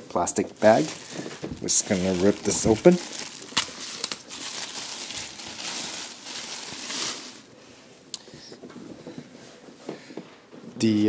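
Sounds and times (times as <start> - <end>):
plastic bag crinkling: 0.2 - 7.6.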